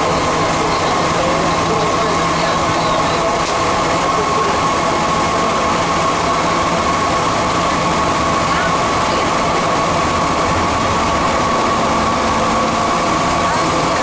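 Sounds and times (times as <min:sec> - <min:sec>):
subway train rumbling: 0:00.0 - 0:14.0
steady high tone: 0:04.0 - 0:14.0.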